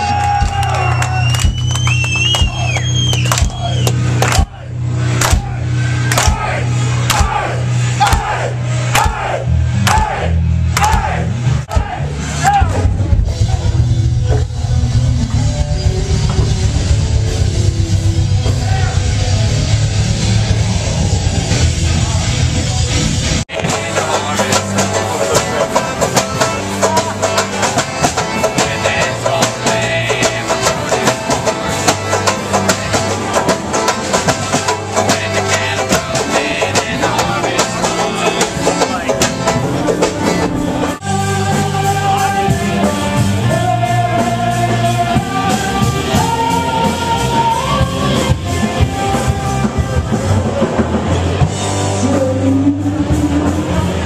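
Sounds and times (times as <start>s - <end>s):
band music with guitar and drums: 0.0s - 54.0s
person singing: 23.5s - 31.8s, 34.6s - 50.7s, 51.9s - 54.0s.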